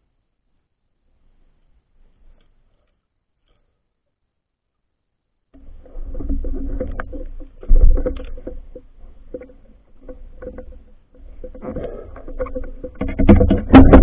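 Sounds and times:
muffled underwater water movement: 5.6 - 14.0.

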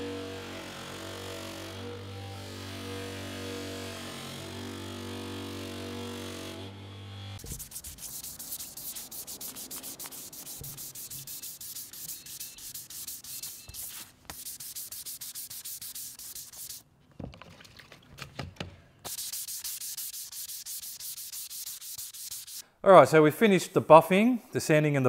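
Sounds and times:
sandpaper rubbing on wood: 7.4 - 16.8, 19.1 - 22.6.

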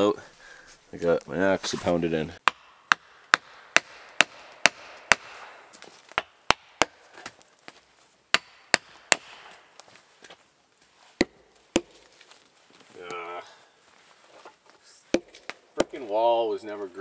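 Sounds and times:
axe knocking on wood: 2.4 - 5.4, 8.3 - 9.5.

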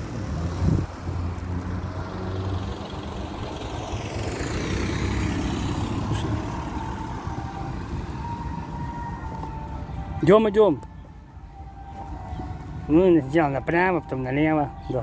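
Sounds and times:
car engine passing: 0.0 - 10.2.

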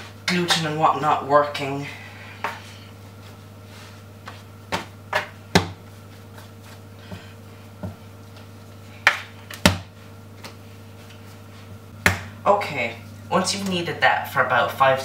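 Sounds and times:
dough thudding on worktop: 4.2 - 8.1, 9.0 - 10.6, 12.0 - 12.4.

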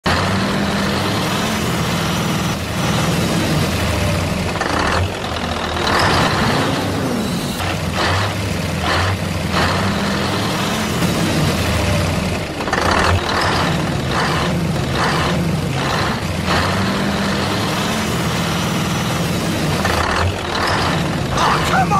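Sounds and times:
truck engine low hum: 0.0 - 21.9.

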